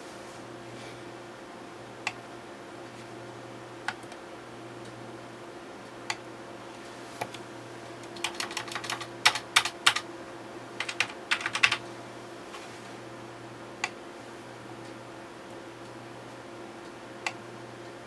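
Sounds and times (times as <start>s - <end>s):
keyboard typing: 8.0s - 10.0s, 10.8s - 11.8s.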